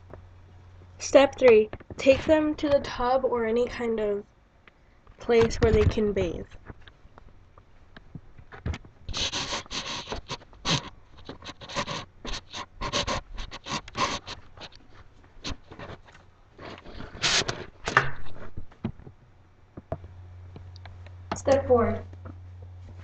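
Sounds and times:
rustling and scraping: 5.0 - 19.2, 21.4 - 23.0.

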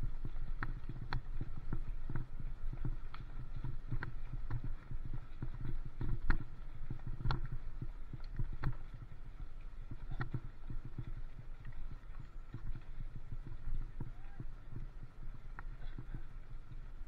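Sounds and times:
camera knocking and rattling: 0.2 - 7.6.

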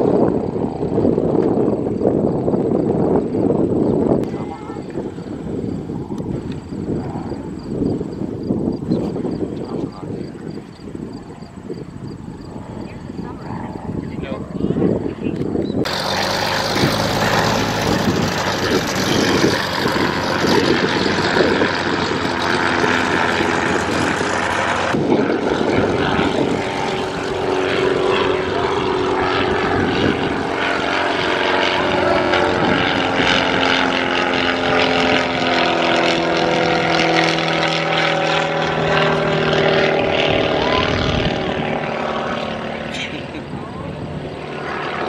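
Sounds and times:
biplane engine rising and falling: 0.0 - 45.0
propeller plane droning overhead: 0.0 - 45.0.

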